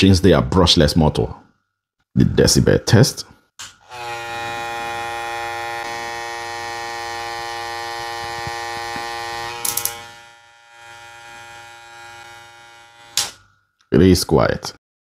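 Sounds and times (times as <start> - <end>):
hair clipper motor whine: 3.8 - 13.5.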